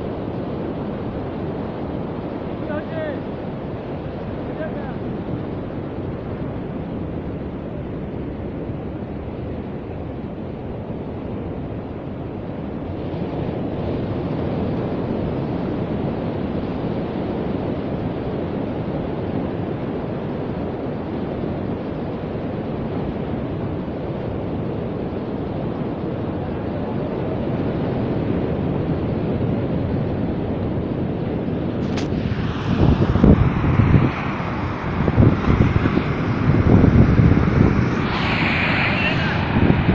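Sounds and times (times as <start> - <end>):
wind buffeting microphone: 30.0 - 39.9
surf breaking on beach: 31.7 - 39.9.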